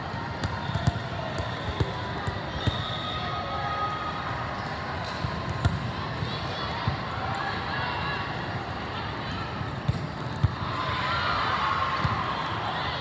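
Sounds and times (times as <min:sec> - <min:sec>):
murmur of distant voices: 0:00.0 - 0:13.0
volleyballs bouncing and struck: 0:00.3 - 0:02.8, 0:05.0 - 0:05.9, 0:09.8 - 0:10.6.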